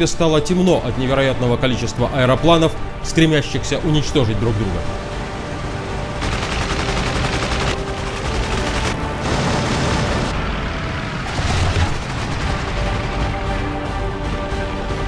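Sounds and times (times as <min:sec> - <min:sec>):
music: 0:00.0 - 0:15.0
machine-gun fire bursts: 0:06.2 - 0:10.4, 0:11.3 - 0:13.5.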